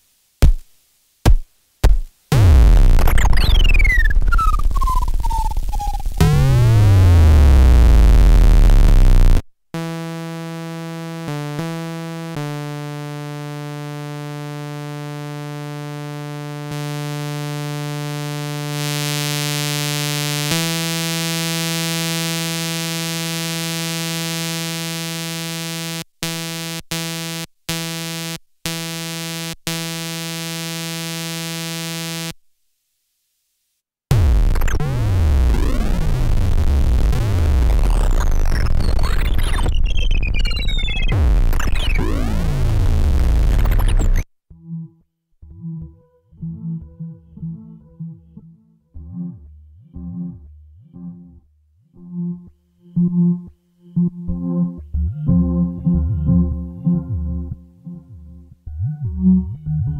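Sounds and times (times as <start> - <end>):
synthesizer pitch sweeps: 2.4 - 9.4, 34.2 - 44.9, 54.0 - 59.9
synthesizer held note: 54.0 - 59.9.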